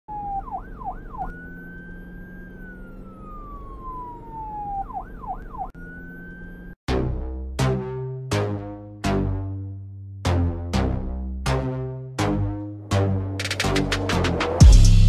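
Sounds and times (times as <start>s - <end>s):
police siren yelps and wail: 0.1s - 6.8s.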